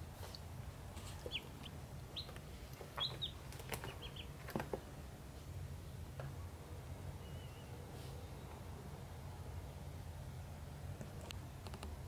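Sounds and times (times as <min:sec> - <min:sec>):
baby birds peeping: 0:00.9 - 0:04.8.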